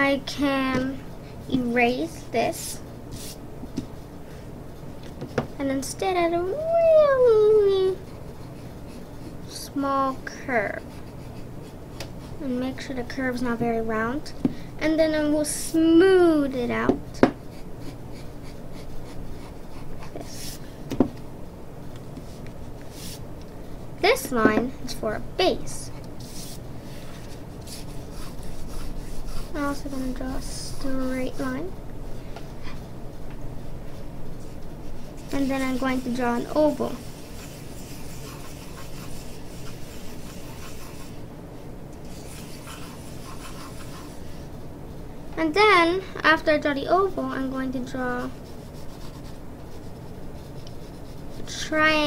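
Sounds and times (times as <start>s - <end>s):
pencil scratching on paper: 10.6s - 12.5s, 17.5s - 20.6s, 26.2s - 26.6s, 27.2s - 31.5s, 34.8s - 41.2s, 42.0s - 44.3s, 48.0s - 51.7s.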